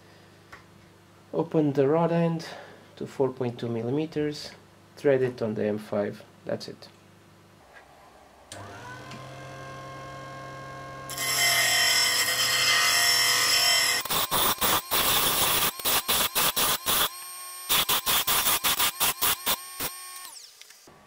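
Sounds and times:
disc sander motor hum: 0:07.8 - 0:18.6.

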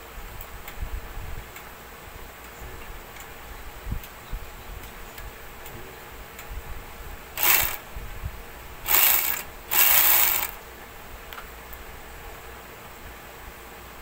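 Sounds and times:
overlock machine running: 0:07.4 - 0:07.8, 0:08.8 - 0:10.6.

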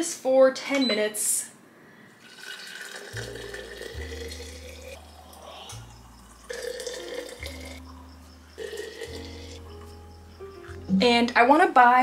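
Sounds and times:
broth pouring into glass jar: 0:02.2 - 0:09.6
low held bass notes music: 0:03.2 - 0:12.0.

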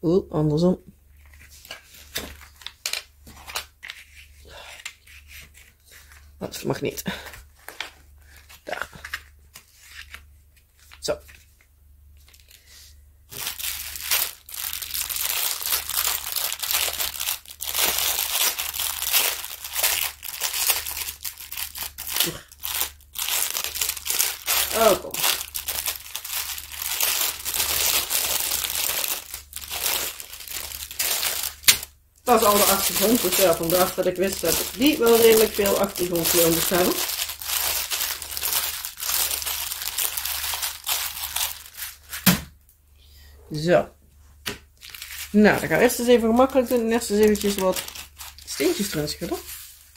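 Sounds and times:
plastic crinkling and rustling: 0:01.1 - 0:12.7, 0:13.3 - 0:42.3, 0:44.4 - 0:49.9.

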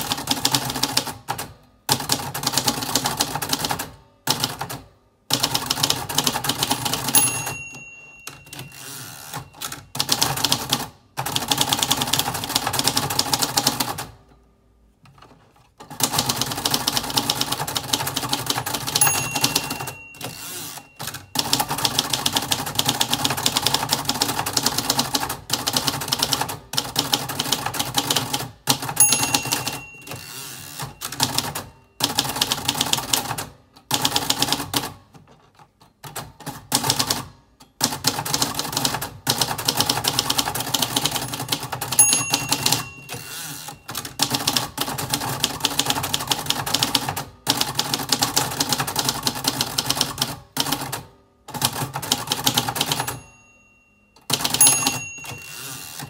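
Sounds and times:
typewriter margin bell ringing: 0:06.4 - 0:10.8, 0:16.3 - 0:23.8, 0:28.8 - 0:33.2, 0:39.8 - 0:47.0, 0:52.1 - 0:56.0
typewriter keys clicking: 0:15.1 - 0:30.2, 0:30.8 - 0:53.3.

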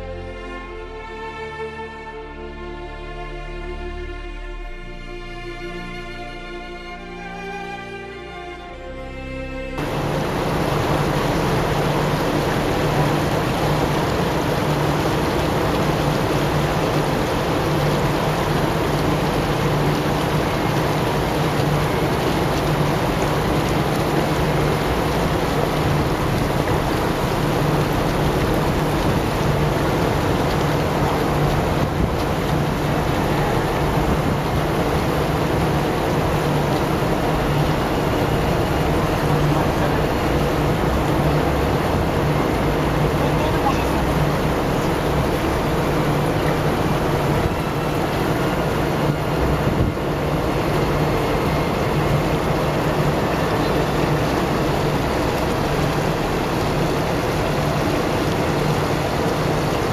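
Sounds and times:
fountain water splashing: 0:09.8 - 0:59.9.

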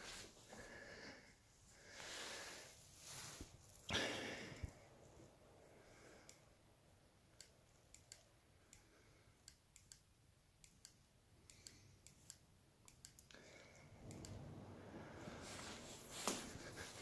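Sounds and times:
faint rustle of movement: 0:00.0 - 0:03.9, 0:13.8 - 0:17.0
faint small clicks: 0:06.2 - 0:06.4, 0:07.3 - 0:13.4, 0:14.0 - 0:14.4.

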